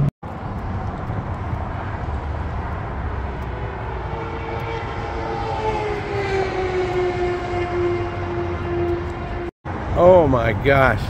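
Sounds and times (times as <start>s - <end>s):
highway traffic rumble: 0.0s - 11.0s
droning engine falling in pitch: 3.7s - 9.5s.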